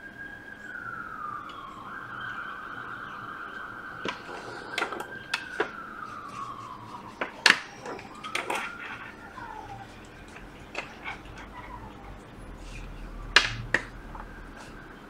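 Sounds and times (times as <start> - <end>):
high whistle-like tone: 0.0 - 15.0.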